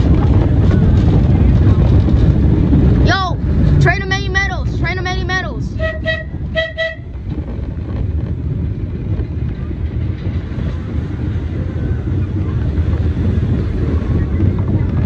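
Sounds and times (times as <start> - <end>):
passing train: 0.0 - 15.0
subway train rumbling on rails: 0.0 - 15.0
short train horn toot: 5.8 - 7.1.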